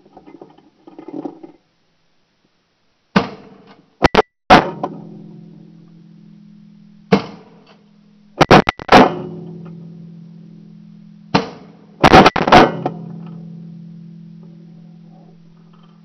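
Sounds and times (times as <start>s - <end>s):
steady low hum: 4.0s - 16.0s
shotgun shots echoing: 11.3s - 13.0s.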